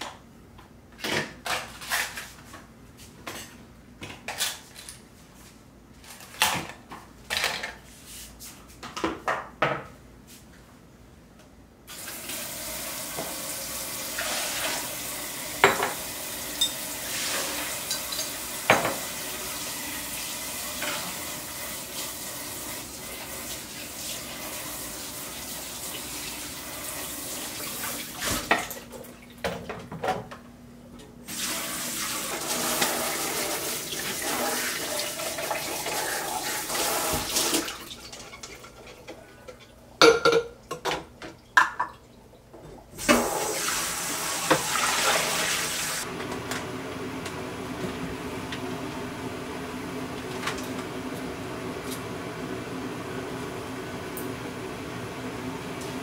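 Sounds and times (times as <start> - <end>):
dishes clinking: 16.6 - 16.8, 39.5 - 41.9
glassware clinking against dishes: 40.0 - 40.8
tap running into a sink: 44.4 - 44.9.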